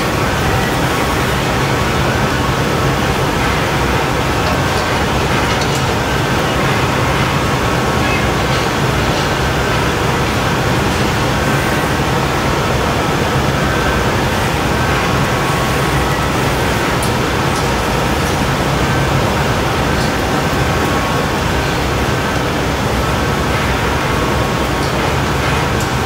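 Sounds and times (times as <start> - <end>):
gas burners and ventilation rushing: 0.0 - 26.0.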